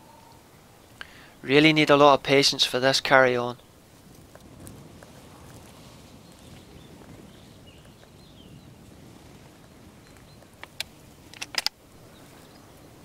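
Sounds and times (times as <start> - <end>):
distant bird calls: 0.0 - 1.7, 3.1 - 13.0
sharp clicks and knocks: 10.6 - 11.8.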